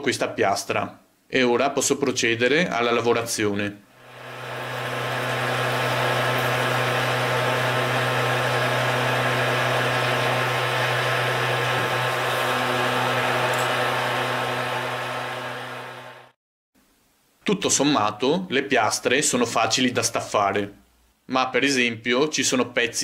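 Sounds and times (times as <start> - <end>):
milling machine cutting metal: 4.1 - 16.3.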